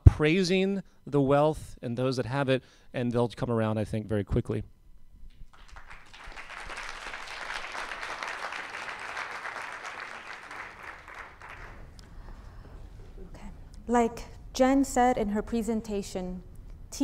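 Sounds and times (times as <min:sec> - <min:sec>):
audience applauding: 0:05.4 - 0:12.0.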